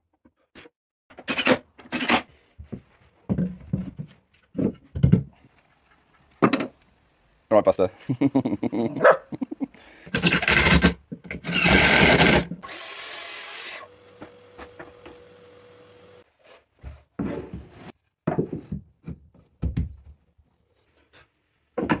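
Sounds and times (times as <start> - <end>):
impact driver driving screws: 10.2 - 15.3.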